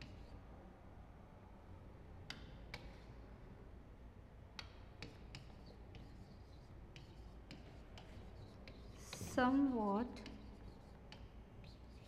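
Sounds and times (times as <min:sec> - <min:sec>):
chalk tapping on chalkboard: 0:02.3 - 0:03.1, 0:04.6 - 0:12.0.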